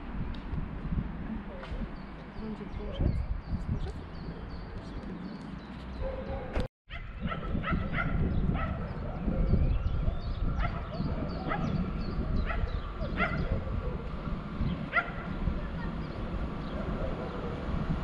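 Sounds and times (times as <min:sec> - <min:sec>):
dog yapping: 0:14.9 - 0:15.3.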